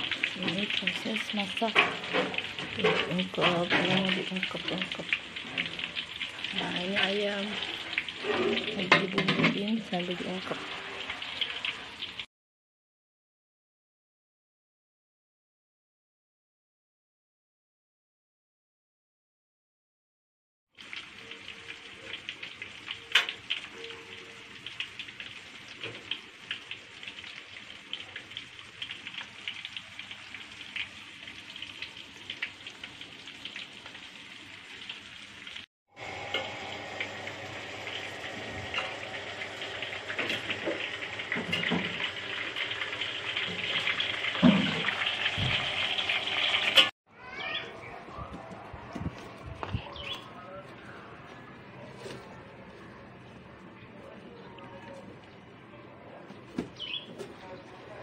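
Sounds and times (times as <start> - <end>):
chicken sizzling in hot oil: 0.0 - 12.3, 20.8 - 46.9.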